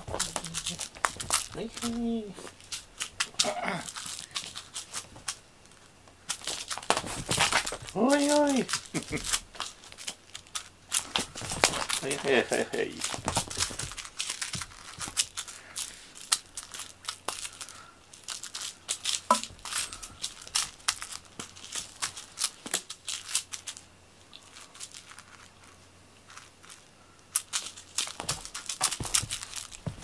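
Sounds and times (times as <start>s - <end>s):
cat scrabbling on mat: 6.4s - 8.0s, 11.0s - 12.1s, 13.1s - 15.2s.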